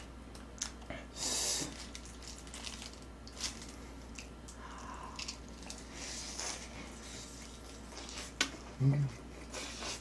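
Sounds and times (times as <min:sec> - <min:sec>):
crisp crackles of fried crust: 0:01.7 - 0:04.3.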